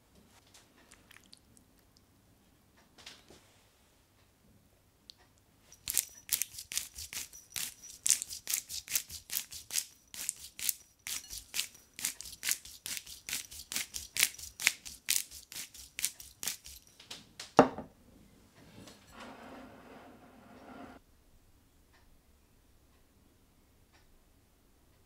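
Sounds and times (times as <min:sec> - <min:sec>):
spice grinder crunching clicks: 0:05.8 - 0:15.3.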